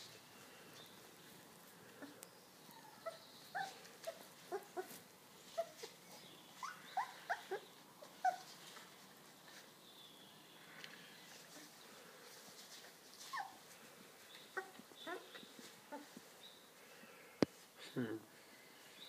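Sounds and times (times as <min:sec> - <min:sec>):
puppies whimpering and squeaking: 0:02.0 - 0:08.7, 0:13.2 - 0:13.8, 0:14.4 - 0:16.3.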